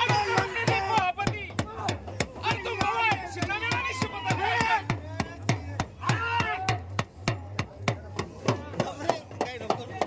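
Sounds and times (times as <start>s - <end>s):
people calling out: 0.0s - 7.0s
drum beaten fast: 0.0s - 10.0s.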